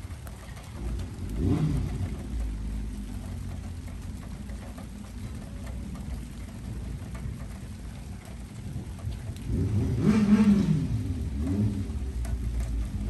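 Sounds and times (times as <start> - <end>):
steady rain: 0.0 - 13.0
thunder rumble: 0.0 - 13.0.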